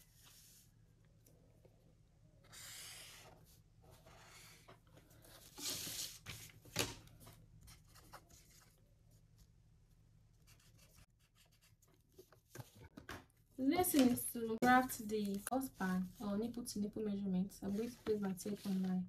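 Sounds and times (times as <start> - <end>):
marker scratching on paper: 2.4 - 3.4
paper sliding and rustling: 3.9 - 6.6.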